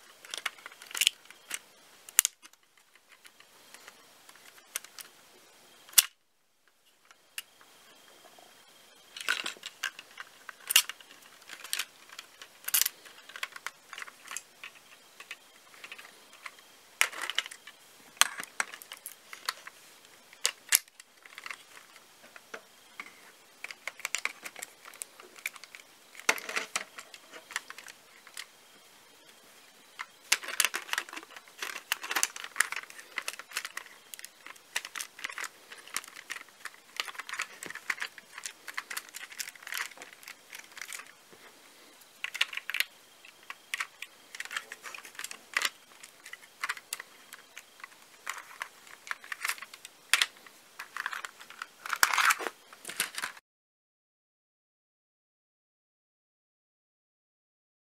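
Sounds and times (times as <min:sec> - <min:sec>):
small plastic clicks and rattles: 0:00.2 - 0:05.1, 0:30.0 - 0:41.1, 0:42.2 - 0:53.4.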